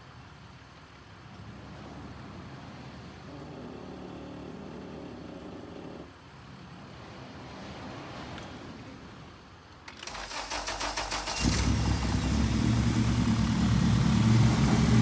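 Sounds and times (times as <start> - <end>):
motor vehicle rumbling: 11.4 - 15.0.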